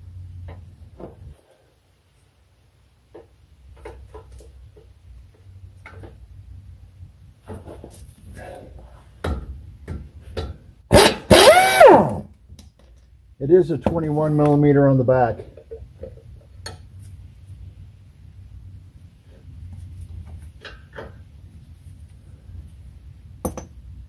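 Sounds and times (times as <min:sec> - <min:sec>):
impact wrench hammering: 0:09.2 - 0:12.2, 0:23.4 - 0:23.8
tools clicking and knocking: 0:23.4 - 0:23.8.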